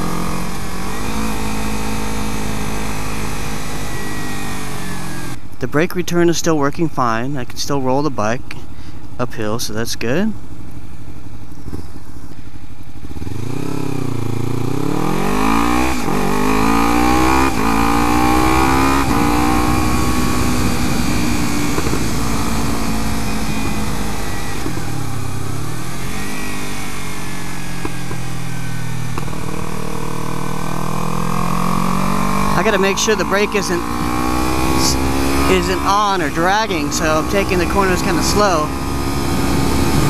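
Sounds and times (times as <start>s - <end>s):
motorcycle engine revving: 0.0s - 5.4s, 12.8s - 40.0s
wind rushing over microphone: 17.5s - 25.4s, 32.4s - 40.0s.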